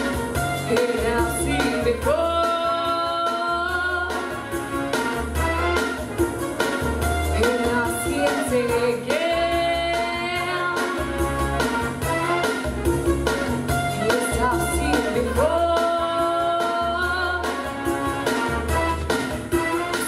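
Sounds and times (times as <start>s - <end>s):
backing music with bass line: 0.0s - 20.0s
woman singing into a microphone: 0.7s - 4.4s, 7.4s - 11.2s, 13.9s - 17.7s.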